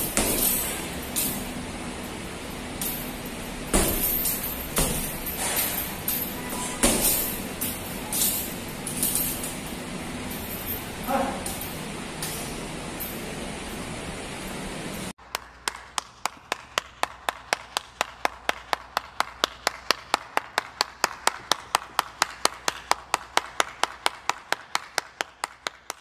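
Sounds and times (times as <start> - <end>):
person clapping: 15.2 - 26.0.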